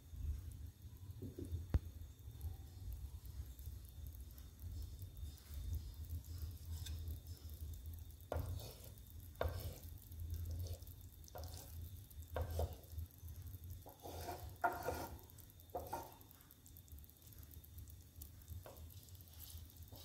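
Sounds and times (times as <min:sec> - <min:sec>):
egg sizzling in pan: 0:00.0 - 0:20.0
wooden spatula scraping pan: 0:08.3 - 0:11.8, 0:12.4 - 0:12.9, 0:13.8 - 0:16.2.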